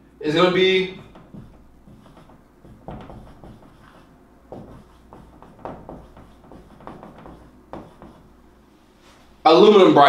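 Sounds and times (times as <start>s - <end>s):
low room hum: 0.0s - 10.0s
pen strokes on board: 1.0s - 8.4s.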